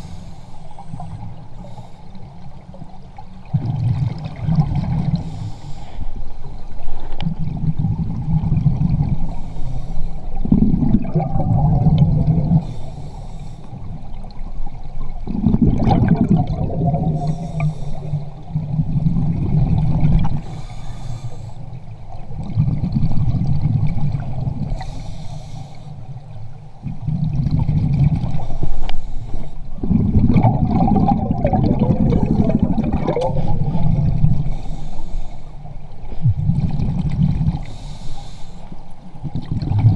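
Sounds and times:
regulator hiss on inhale: 0.0s - 2.4s, 5.2s - 6.5s, 9.2s - 10.4s, 12.6s - 14.0s, 17.1s - 18.5s, 20.3s - 21.9s, 24.6s - 26.4s, 28.3s - 29.8s, 33.4s - 36.2s, 37.5s - 39.1s
exhaled air bubbling underwater: 0.0s - 39.9s.

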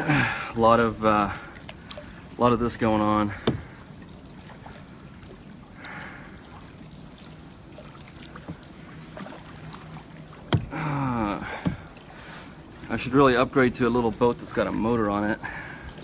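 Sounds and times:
kayak paddle dipping in water: 0.0s - 16.0s
water trickling: 0.0s - 16.0s.

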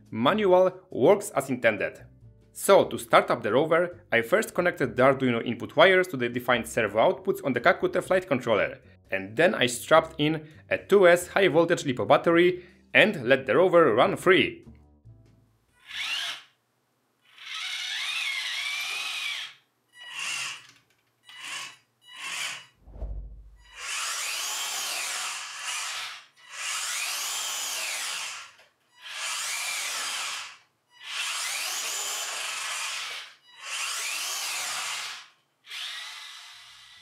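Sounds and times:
toy tank motors whining: 15.8s - 16.5s, 17.2s - 22.8s, 23.7s - 37.0s
short low thump: 22.8s - 23.7s.

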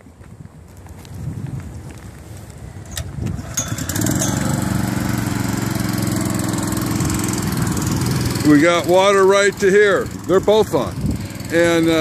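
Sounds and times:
water pump engine idling: 2.9s - 12.0s.

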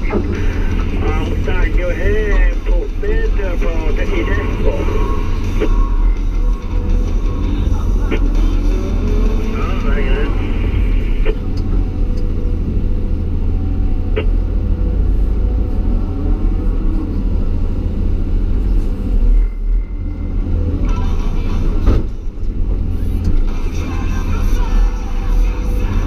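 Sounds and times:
diesel excavator engine rumbling: 0.0s - 26.0s.

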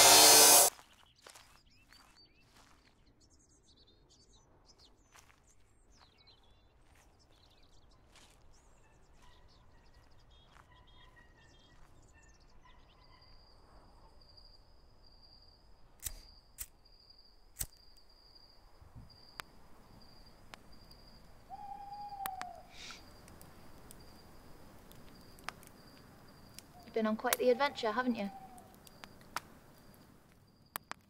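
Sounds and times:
faint bird chirps: 0.8s - 30.9s
sharp clicks: 16.0s - 16.8s, 17.5s - 18.0s, 22.2s - 27.7s, 28.4s - 31.0s.

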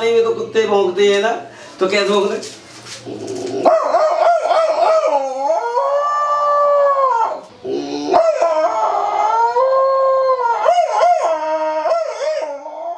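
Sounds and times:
man imitating dog howling: 3.6s - 12.9s.

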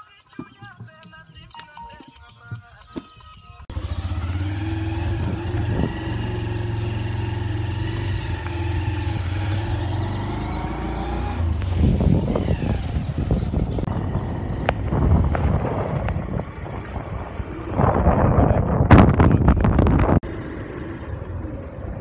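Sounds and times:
vehicle engine running: 3.7s - 17.7s
wind and handling noise on microphone: 11.5s - 20.2s.

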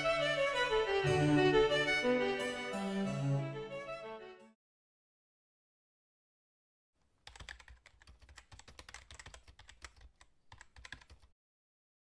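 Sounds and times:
keyboard typing: 7.2s - 11.3s.

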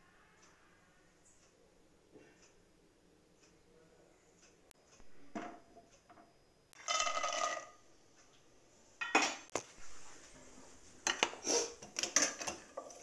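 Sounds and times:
metal spoon scraping a pot: 6.8s - 7.8s, 11.0s - 13.0s.

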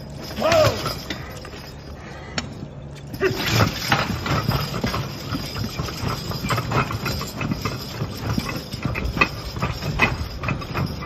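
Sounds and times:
sled dragging rumble: 3.2s - 11.0s
hooves thudding in loose dirt: 3.6s - 11.0s.

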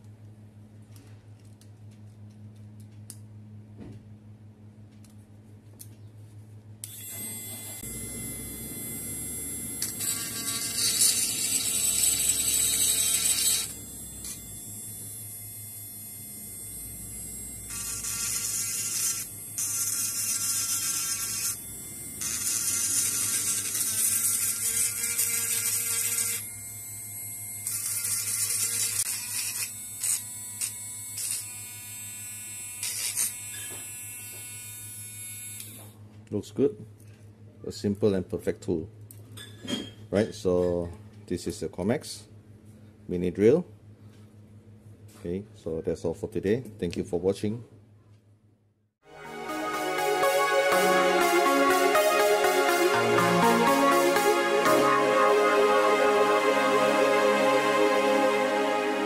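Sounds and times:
rotary tool whining: 6.8s - 26.6s.

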